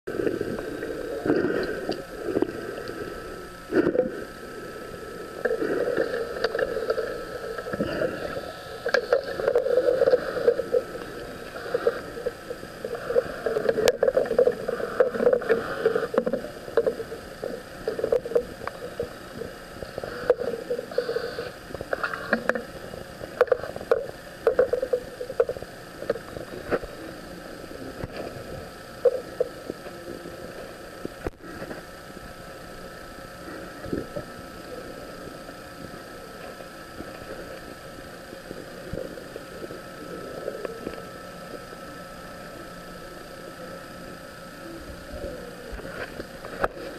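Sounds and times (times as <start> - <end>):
underwater thrusters whirring: 0.1 - 26.9.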